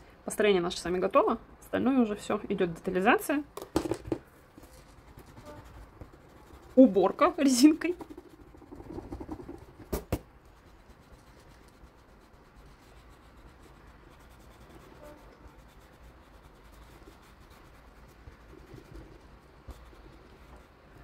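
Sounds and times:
eraser rubbing on paper: 0:04.6 - 0:21.0.

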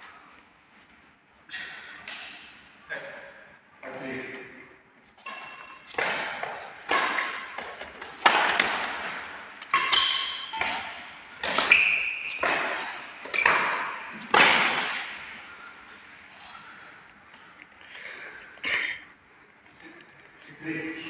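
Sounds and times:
racket hitting shuttlecock: 0:02.0 - 0:02.6, 0:05.2 - 0:15.4.

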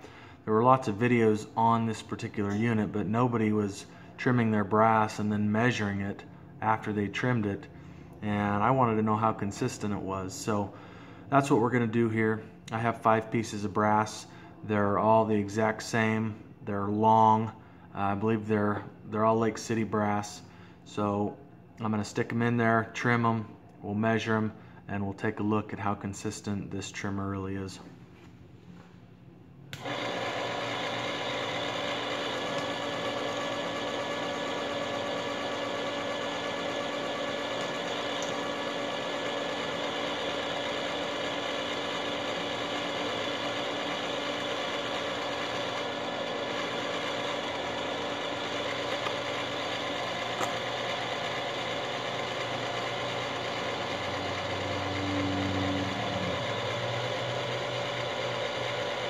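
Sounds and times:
electric motor humming: 0:29.8 - 0:59.0.

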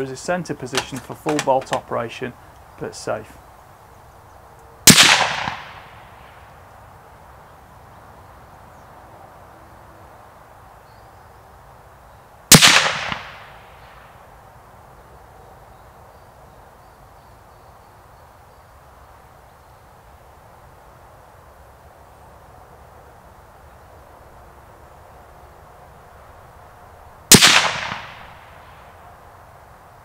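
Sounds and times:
rifle shot with echo: 0:04.9 - 0:06.4, 0:12.5 - 0:13.8, 0:27.3 - 0:28.8.

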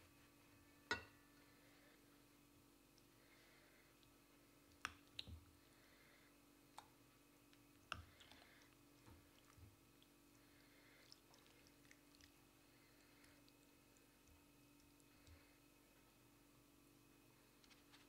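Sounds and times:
faint steady hum: 0:00.0 - 0:18.0
metal spoon clinking on dishes: 0:00.9 - 0:01.2.

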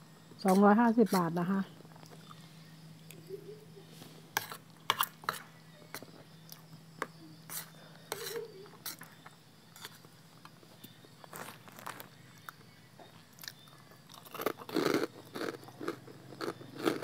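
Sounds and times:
crunchy chewing: 0:10.8 - 0:17.0.

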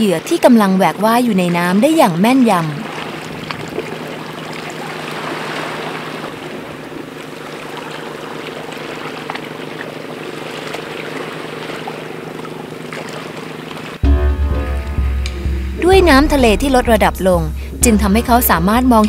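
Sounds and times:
wash of water: 0:00.0 - 0:14.0
low steady hum: 0:00.0 - 0:19.0.

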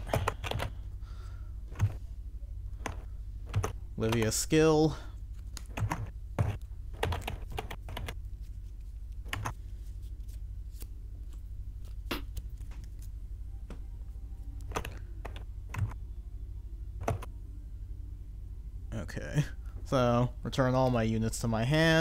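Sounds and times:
low hum: 0:00.0 - 0:22.0.

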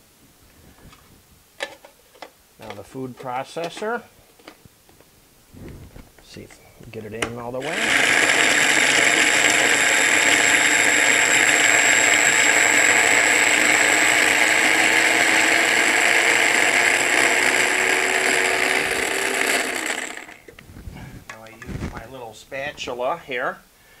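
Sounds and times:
electric food chopper whirring: 0:07.6 - 0:20.6.

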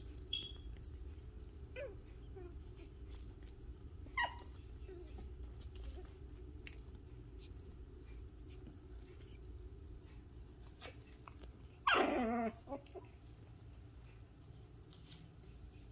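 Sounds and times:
faint clicks and patter: 0:00.0 - 0:11.8, 0:12.4 - 0:15.9
puppies moving about: 0:00.0 - 0:15.7
puppy whining: 0:00.4 - 0:06.3, 0:10.8 - 0:13.4.

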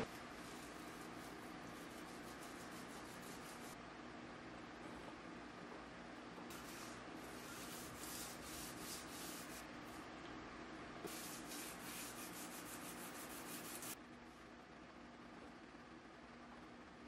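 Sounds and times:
sandpaper rasping on steel blade: 0:00.0 - 0:03.8, 0:06.5 - 0:09.7, 0:11.1 - 0:14.0.

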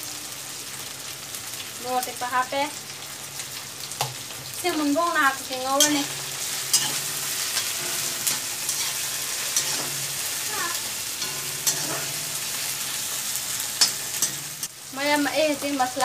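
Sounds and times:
vegetables sizzling in hot oil: 0:00.0 - 0:16.0
metal spatula scraping pan: 0:05.8 - 0:10.4, 0:11.0 - 0:14.7.

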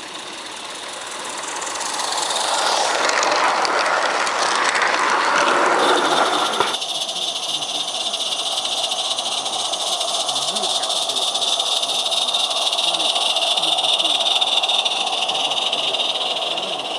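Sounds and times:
steam locomotive hiss: 0:00.0 - 0:16.9
wheels clicking on track: 0:00.0 - 0:16.9.

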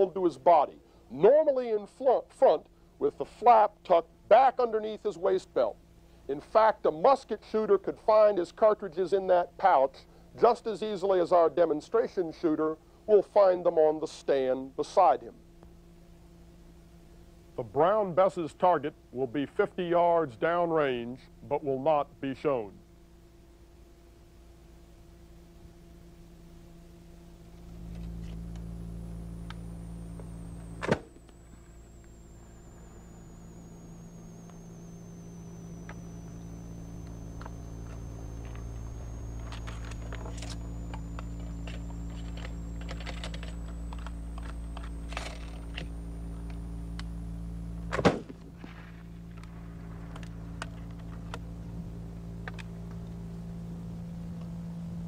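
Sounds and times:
steady hum: 0:00.0 - 0:55.0
musket firing: 0:47.9 - 0:50.5.

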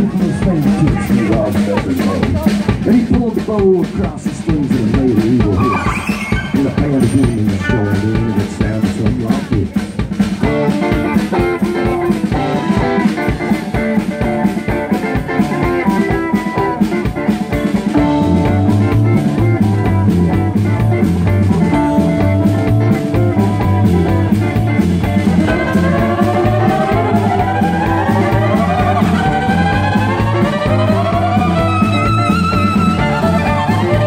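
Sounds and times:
country-rock band playing: 0:00.0 - 0:34.0
heavy rhythmic bass line: 0:00.0 - 0:34.0
rising slides: 0:05.6 - 0:06.8, 0:25.2 - 0:34.0.

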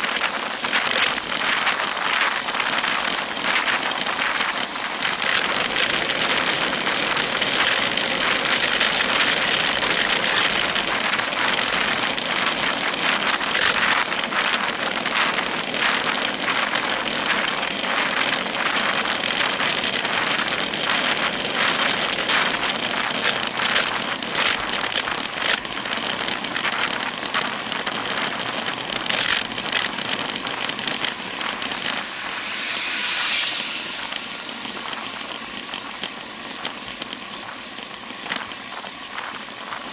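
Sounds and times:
bike tyres hissing on asphalt: 0:00.0 - 0:39.9
wind buffeting camera: 0:00.0 - 0:39.9
motor vehicle passing: 0:29.0 - 0:37.7.

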